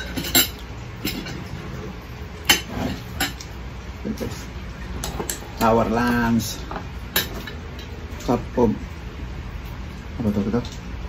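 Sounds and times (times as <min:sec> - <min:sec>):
spoons clinking on glass plates: 0:00.0 - 0:01.6, 0:02.4 - 0:03.6, 0:06.7 - 0:08.3.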